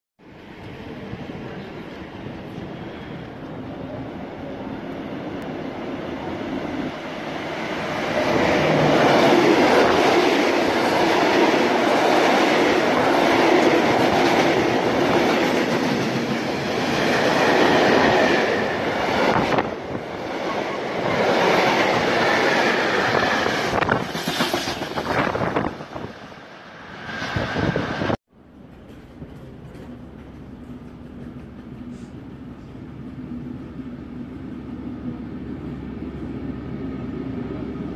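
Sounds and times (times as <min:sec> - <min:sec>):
freight train wheels clattering: 0:28.6 - 0:33.1.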